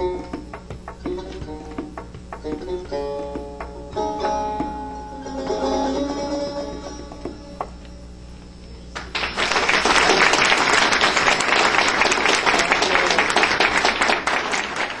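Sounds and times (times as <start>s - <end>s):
long-necked lute notes: 0.0s - 8.0s
audience applause: 9.0s - 15.0s.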